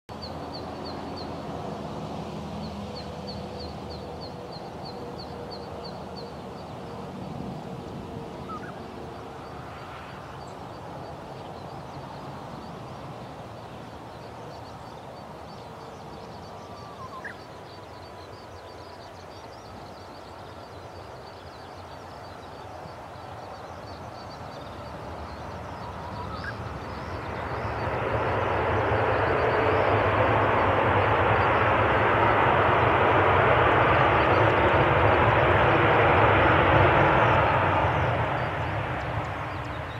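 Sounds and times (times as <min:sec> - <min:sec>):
distant jet engine: 0:00.1 - 0:39.9
loud jet engine noise: 0:00.1 - 0:39.9
bird chirps: 0:08.4 - 0:08.8, 0:14.1 - 0:28.0.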